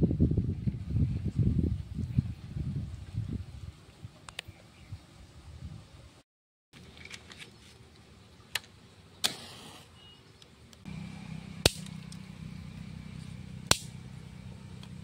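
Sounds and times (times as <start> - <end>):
steady low hum: 10.7 - 15.0.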